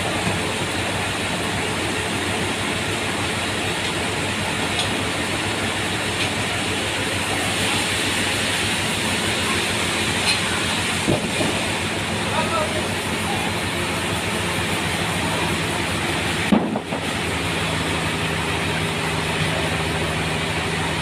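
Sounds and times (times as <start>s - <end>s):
sawmill machinery running: 0.0s - 21.0s.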